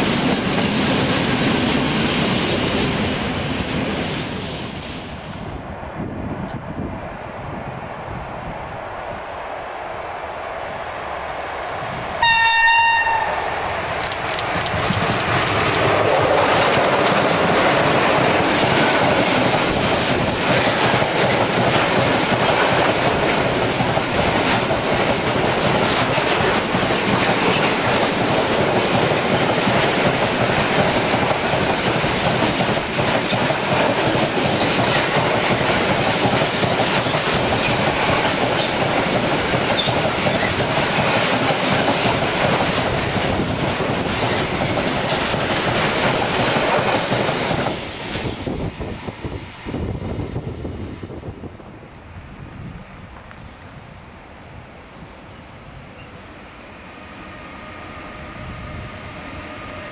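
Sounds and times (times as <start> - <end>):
freight train passing: 0.0 - 59.9
wheels clicking over rail joints: 14.0 - 48.3.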